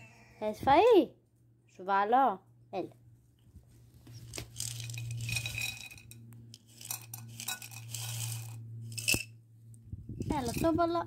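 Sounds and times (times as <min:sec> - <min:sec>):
dry kibble rattling onto plate: 0:04.3 - 0:09.2.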